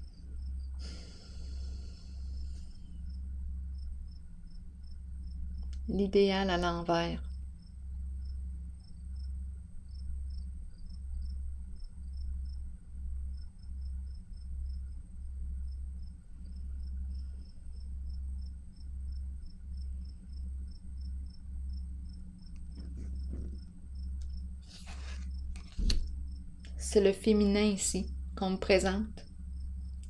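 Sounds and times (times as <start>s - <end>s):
cricket chirping: 0.0s - 30.0s
low hum: 0.0s - 30.0s
paper cards handled: 24.7s - 26.0s.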